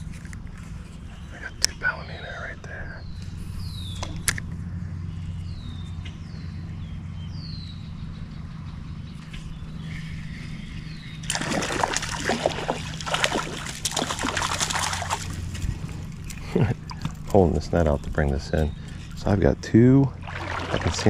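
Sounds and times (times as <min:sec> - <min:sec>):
water splashing and sloshing: 0:11.2 - 0:17.3, 0:20.1 - 0:21.0.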